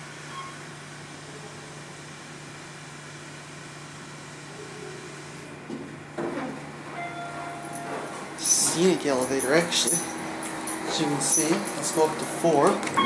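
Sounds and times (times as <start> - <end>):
elevator machine hum: 0.0 - 13.0
elevator doors sliding open: 5.9 - 13.0.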